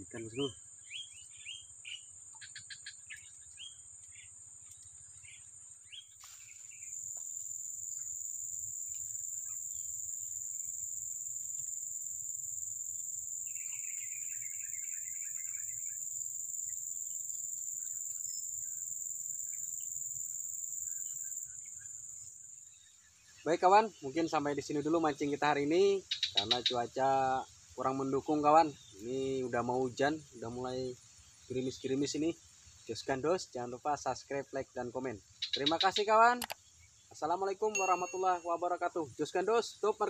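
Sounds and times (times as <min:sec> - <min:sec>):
bird chirps: 0:00.0 - 0:24.4, 0:26.0 - 0:27.0, 0:35.4 - 0:38.8
high-pitched insect drone: 0:06.2 - 0:22.8, 0:37.2 - 0:40.0.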